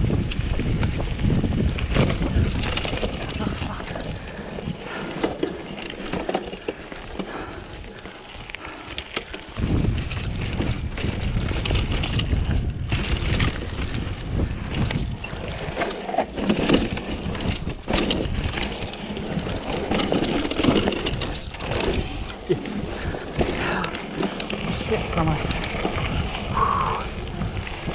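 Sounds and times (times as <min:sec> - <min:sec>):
bike clicks and rattles: 0:00.0 - 0:27.9
bike tyres on gravel: 0:00.0 - 0:27.9
wind rumble on microphone: 0:00.0 - 0:27.9.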